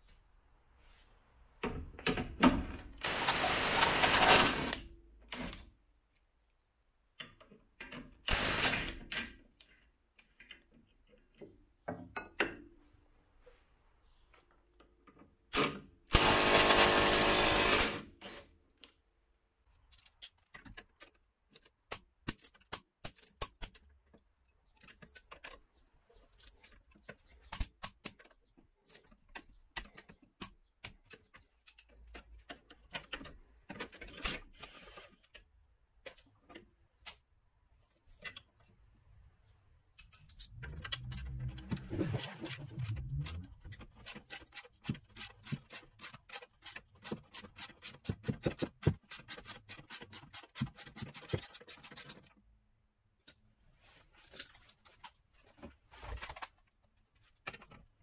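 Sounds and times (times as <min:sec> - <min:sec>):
power tool running: 0:16.2 - 0:18.0
metal tools clinking: 0:40.0 - 0:41.4
grinding mechanical noise: 0:40.5 - 0:44.5.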